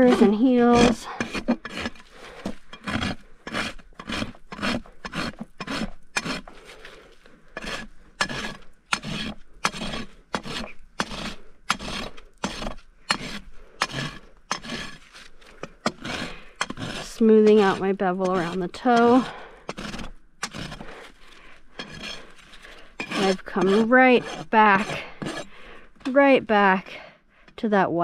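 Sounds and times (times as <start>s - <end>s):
hoof rasp strokes on hoof: 0.0s - 26.4s.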